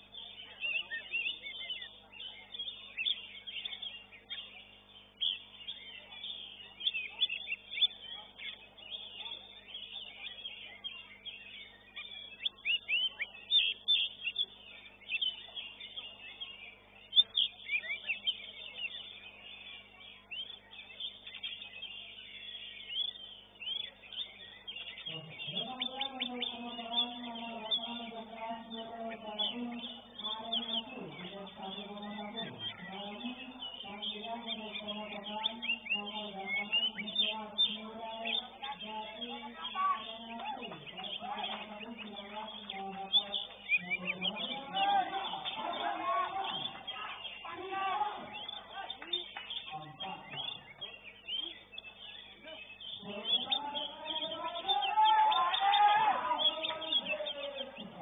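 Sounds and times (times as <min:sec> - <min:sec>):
bird singing chirps and whistles: 0:00.0 - 0:58.0
faint steady hum: 0:00.0 - 0:58.0
man speaking: 0:53.0 - 0:58.0.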